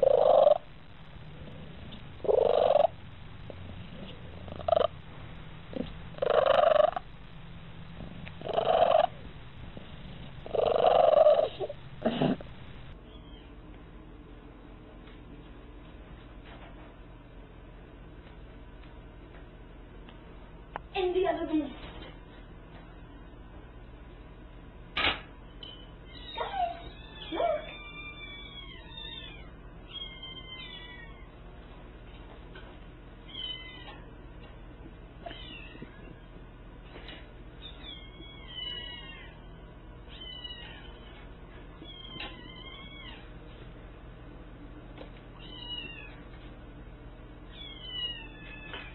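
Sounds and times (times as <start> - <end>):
cat purring loudly: 0.0 - 0.7, 1.3 - 5.0, 5.7 - 7.1, 8.0 - 12.6
cat calling: 2.2 - 3.0, 4.5 - 4.9, 5.8 - 7.0, 8.4 - 9.2, 10.4 - 12.4
kittens meowing: 26.1 - 31.4, 37.6 - 41.2, 41.8 - 43.4, 45.4 - 46.2, 47.5 - 48.9.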